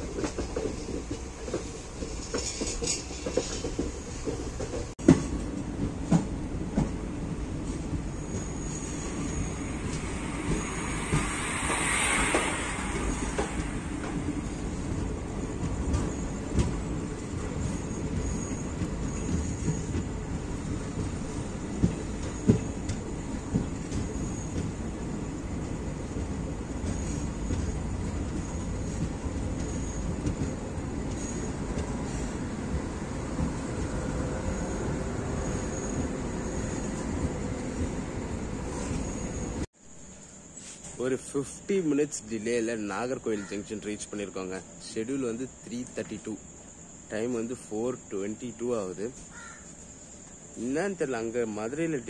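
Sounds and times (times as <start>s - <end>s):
clattering over rail joints: 0.0s - 7.0s
train wheels rumbling on track: 0.0s - 39.8s, 40.6s - 52.0s
brief hiss: 8.8s - 14.9s.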